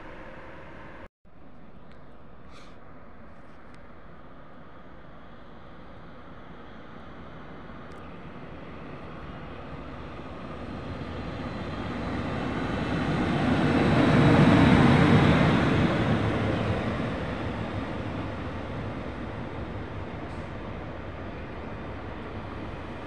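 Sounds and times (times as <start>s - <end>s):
train wheels rumbling on rails: 8.0s - 23.0s.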